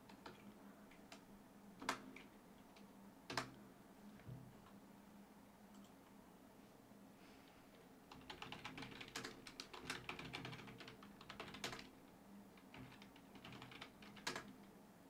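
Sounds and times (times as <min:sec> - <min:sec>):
keyboard typing: 0:00.0 - 0:01.2, 0:01.8 - 0:03.6, 0:08.1 - 0:11.9, 0:12.6 - 0:14.7.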